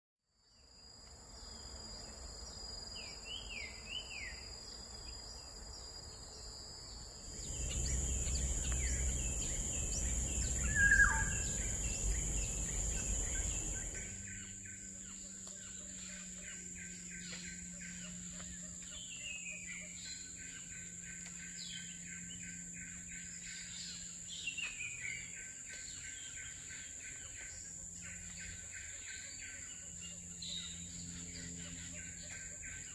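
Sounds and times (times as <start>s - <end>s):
high-pitched insect drone: 7.2s - 32.9s
bird chirps and whistled calls: 7.5s - 14.0s.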